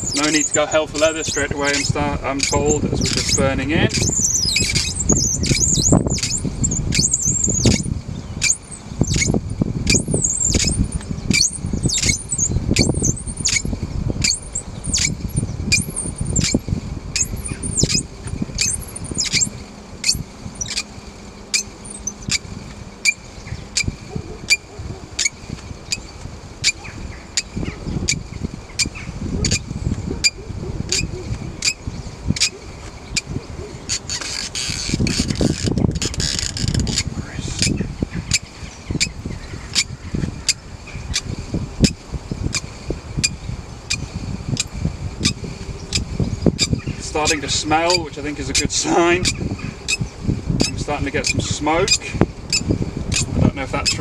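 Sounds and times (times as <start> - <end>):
bow drill spindle squeaking: 0.0 - 20.9, 21.5 - 22.4, 33.9 - 39.2, 46.6 - 54.0
dry wooden rubbing: 0.0 - 23.2, 33.2 - 38.4.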